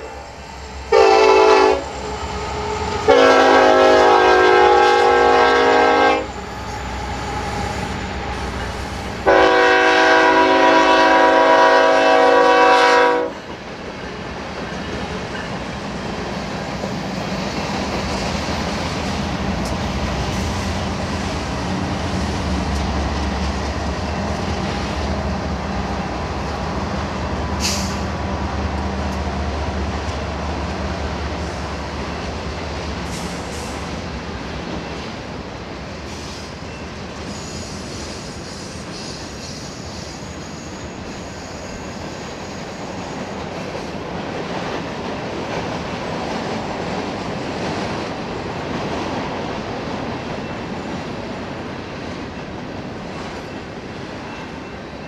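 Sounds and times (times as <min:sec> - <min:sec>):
high squeal: 0:00.0 - 0:03.3, 0:06.2 - 0:09.2, 0:36.1 - 0:43.4
locomotive air horn blasts: 0:00.0 - 0:13.4
freight train rumbling past: 0:00.0 - 0:55.0.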